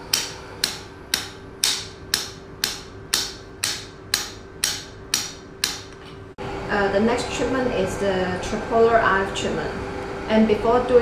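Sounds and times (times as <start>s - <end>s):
sharp tapping clicks: 0.1s - 6.0s.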